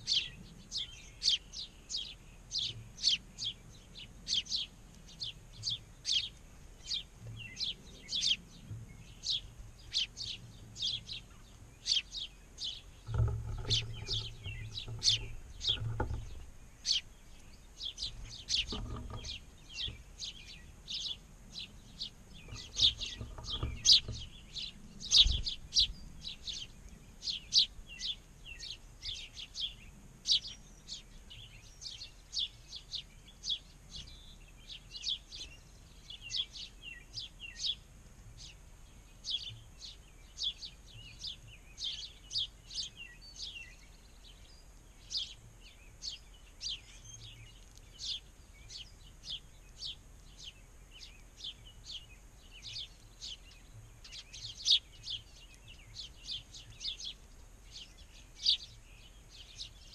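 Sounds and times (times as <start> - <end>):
sparrows chirping: 0.0 - 59.9
dull low thumps: 12.7 - 17.2.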